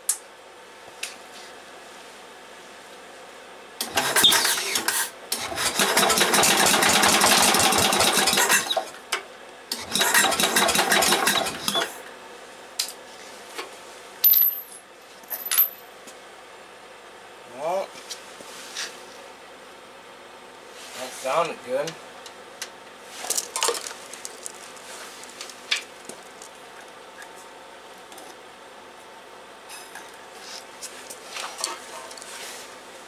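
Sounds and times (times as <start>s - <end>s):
engine firing in bursts: 3.8s - 9.0s, 9.7s - 12.0s.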